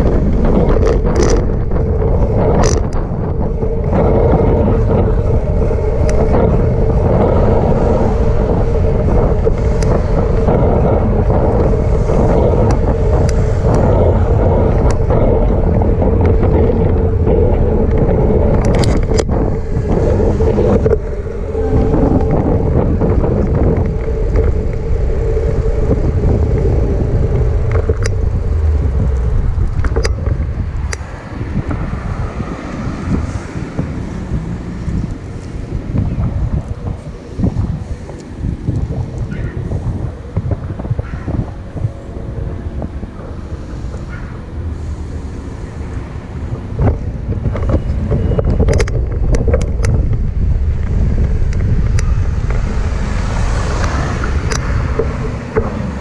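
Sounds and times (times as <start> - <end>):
bicycle clicks and knocks: 0.0 - 21.4, 22.2 - 31.9, 46.8 - 56.0
steady hum: 0.0 - 56.0
wind buffeting microphone: 0.0 - 56.0.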